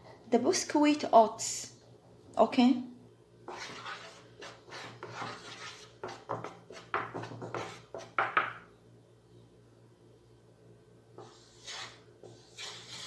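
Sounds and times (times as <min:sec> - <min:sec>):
spoon scraping dry powder in pan: 0:03.5 - 0:08.2, 0:11.2 - 0:13.0.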